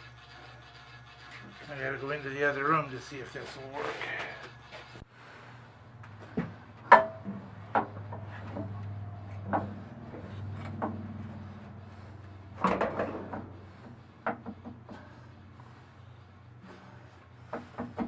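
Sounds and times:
steady low hum: 0.0s - 18.0s
knocks and clunks of heavy metal: 12.6s - 14.9s.

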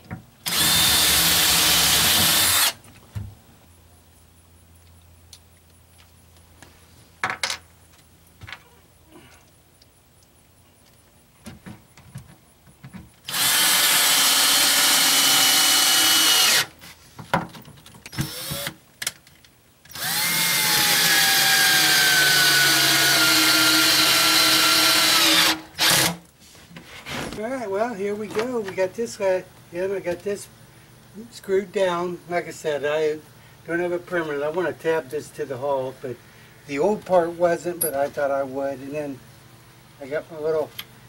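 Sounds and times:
cordless drill driving screws: 0.4s - 2.8s, 13.3s - 16.7s, 18.1s - 18.8s, 19.9s - 26.2s.

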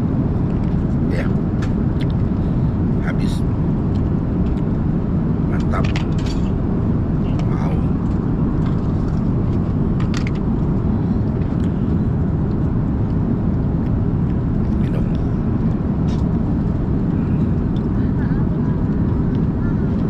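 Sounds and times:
airliner cabin rumble: 0.0s - 20.0s.

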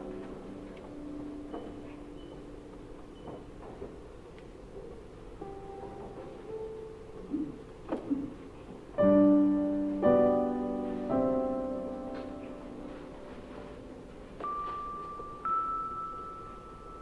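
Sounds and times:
piano chords: 0.0s - 2.9s, 5.2s - 17.0s
high piano notes: 9.0s - 17.0s.

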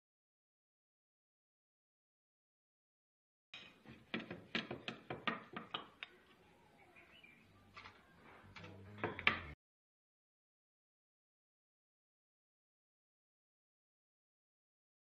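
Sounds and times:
rolling pin knocking on wooden board: 3.6s - 6.0s, 9.0s - 9.6s.

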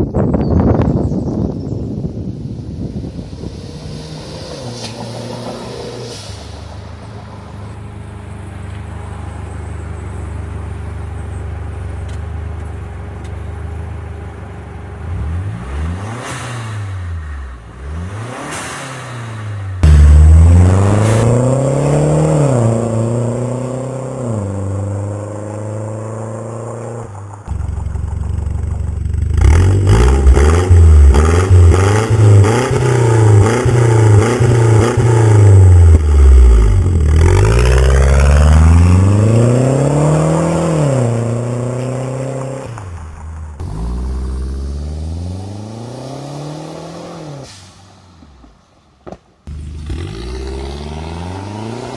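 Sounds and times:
car passing by: 3.2s - 8.8s
car engine revving and accelerating: 15.0s - 43.0s, 43.6s - 47.6s, 49.5s - 51.9s.

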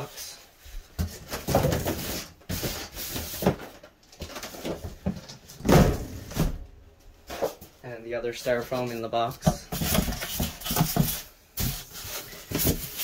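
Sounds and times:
knocks and heavy thump: 4.7s - 6.8s
styrofoam pieces scraping and rustling: 9.7s - 13.0s.

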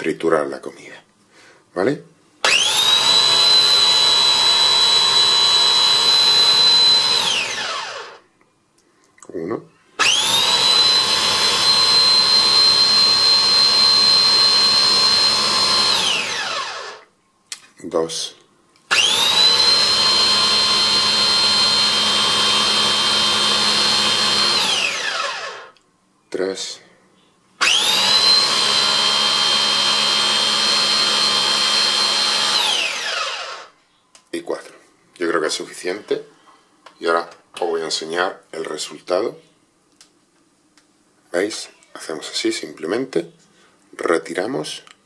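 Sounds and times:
blender motor whining: 2.4s - 8.2s, 10.0s - 17.1s, 18.9s - 25.8s, 27.6s - 33.8s.

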